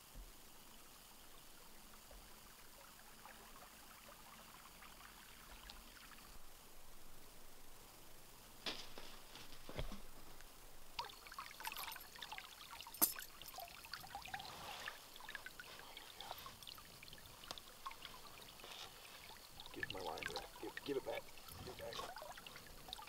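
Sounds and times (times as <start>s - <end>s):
river water sloshing and trickling: 11.0s - 23.0s
small water splashes: 11.0s - 23.0s.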